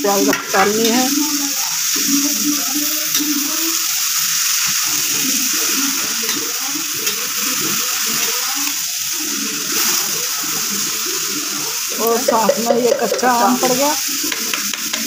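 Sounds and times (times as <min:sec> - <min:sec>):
onions sizzling in oil: 0:00.0 - 0:15.0
ladle clicking against pan: 0:12.0 - 0:15.0.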